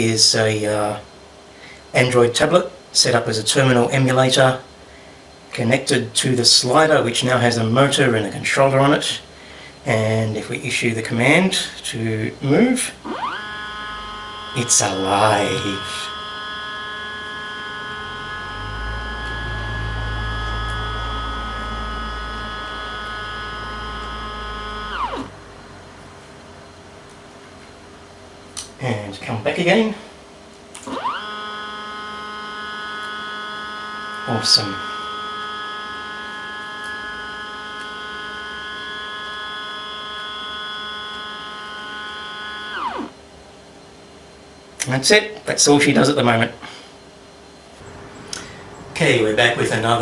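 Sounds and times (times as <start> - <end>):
low hum: 4.6 - 29.2
stepper motor whining: 9.1 - 25.9, 30.7 - 43.2.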